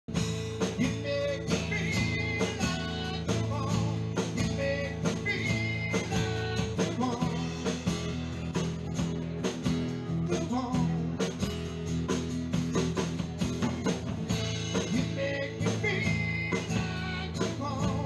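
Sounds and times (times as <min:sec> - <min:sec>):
acoustic guitar strumming: 0:00.1 - 0:18.0.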